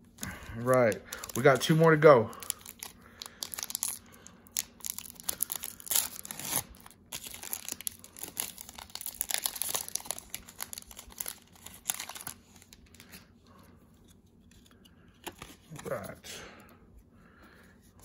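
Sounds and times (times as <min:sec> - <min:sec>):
foil wrapper crinkling and tearing: 0:00.2 - 0:13.2.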